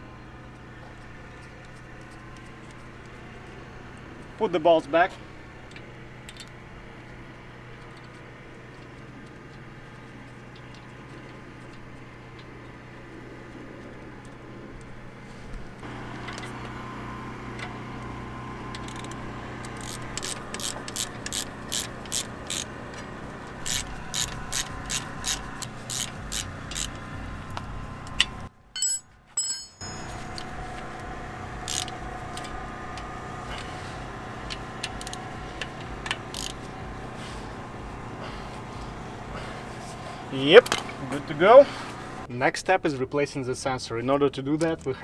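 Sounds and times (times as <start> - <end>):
ratchet wrench clicking: 18.7 - 22.7, 23.6 - 27.0, 31.6 - 32.0, 34.4 - 36.7.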